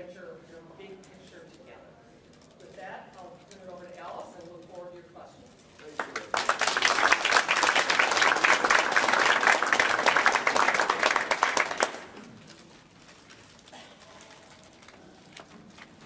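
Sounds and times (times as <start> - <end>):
audience applauding: 5.8 - 12.4.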